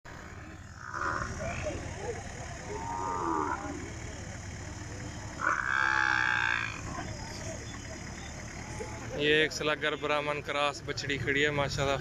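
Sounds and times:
cattle mooing: 0:00.1 - 0:03.9, 0:05.4 - 0:06.9
crowd murmur: 0:00.1 - 0:12.0.

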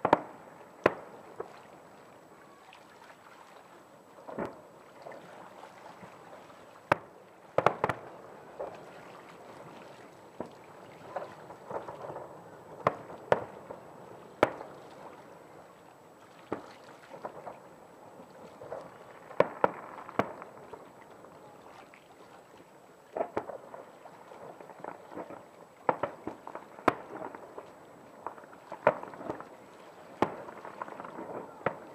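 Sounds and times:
fireworks bangs: 0:00.0 - 0:01.6, 0:04.2 - 0:04.7, 0:06.9 - 0:08.9, 0:09.6 - 0:15.1, 0:16.5 - 0:21.7, 0:23.1 - 0:31.9
fireworks crackle: 0:00.0 - 0:02.7, 0:03.7 - 0:31.9.

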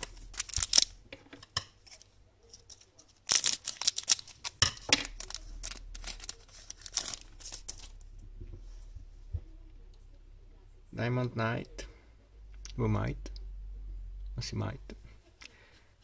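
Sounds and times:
foil pack crinkling: 0:00.0 - 0:01.0, 0:02.6 - 0:08.0.

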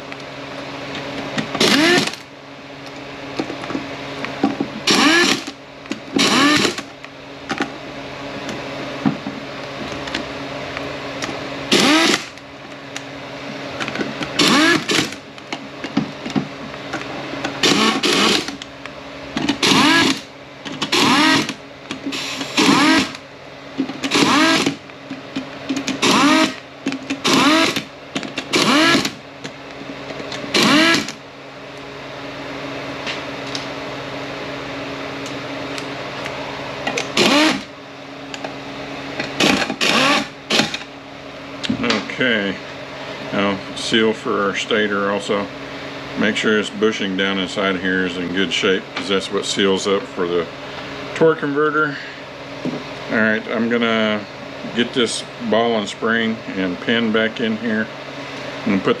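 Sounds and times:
steady shop hum: 0:00.0 - 0:59.0
air ratchet spinning fasteners: 0:01.6 - 0:02.2, 0:04.8 - 0:05.5, 0:06.2 - 0:06.9, 0:11.7 - 0:12.3, 0:14.4 - 0:15.2, 0:17.6 - 0:18.6, 0:19.4 - 0:23.2, 0:23.9 - 0:29.2, 0:30.5 - 0:31.2, 0:37.0 - 0:37.7, 0:39.4 - 0:40.8.

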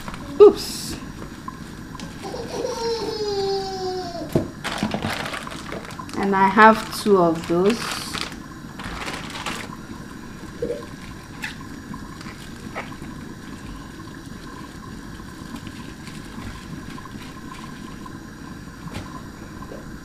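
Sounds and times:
water sloshing and dripping in pan: 0:04.2 - 0:20.0.

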